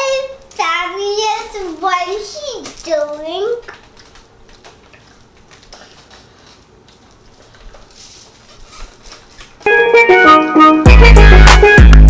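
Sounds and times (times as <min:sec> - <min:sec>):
faint taps and rustles: 0:01.3 - 0:09.7.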